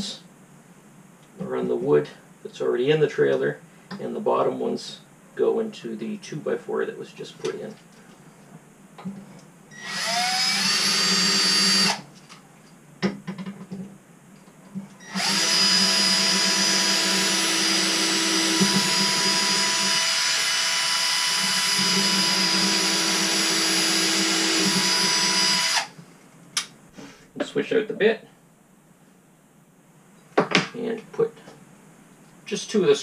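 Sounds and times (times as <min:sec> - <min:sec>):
cordless drill boring wood: 0:09.7 - 0:12.0, 0:15.0 - 0:25.9.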